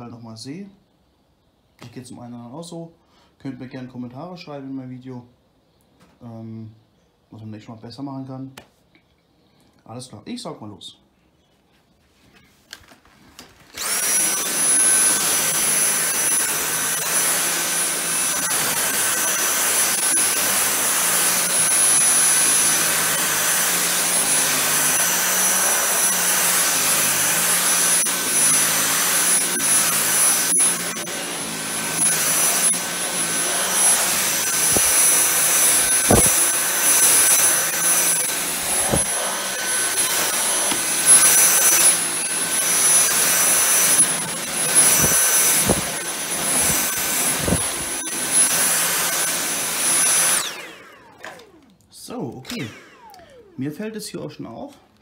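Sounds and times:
cordless vacuum motor whine: 13.6s - 51.8s, 52.4s - 53.7s
brush head sweeping grass mat: 34.0s - 39.3s, 43.2s - 48.0s.

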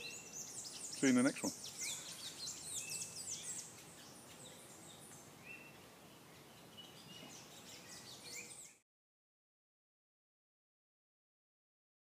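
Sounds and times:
outdoor hiss: 0.0s - 8.2s
birds chirping: 0.0s - 8.8s.

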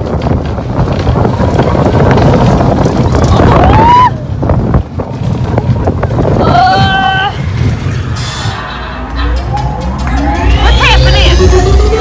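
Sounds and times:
wind buffeting microphone: 0.0s - 8.2s
person whooping: 3.6s - 4.2s.

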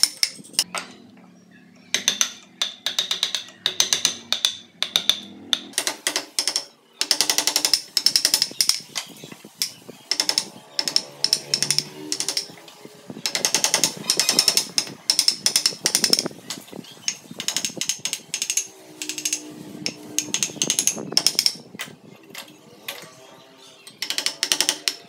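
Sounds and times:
chisel cutting wood: 9.6s - 12.6s, 17.4s - 21.6s.

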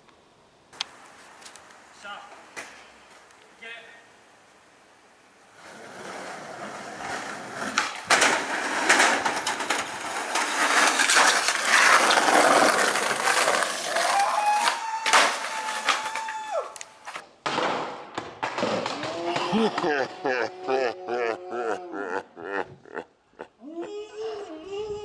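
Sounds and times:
skateboard wheels rolling on concrete: 0.0s - 20.9s
skateboard clacking on ground: 5.6s - 20.0s.

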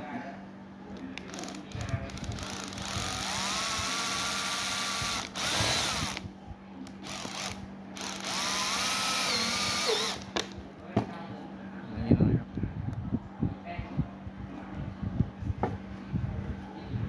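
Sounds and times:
drill driving screws into metal: 3.0s - 6.2s, 7.1s - 10.3s.

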